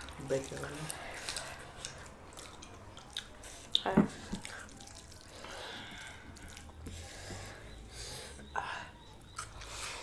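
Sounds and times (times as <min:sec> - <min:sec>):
wet mouth chewing smacks: 0:00.0 - 0:07.1, 0:09.0 - 0:09.9.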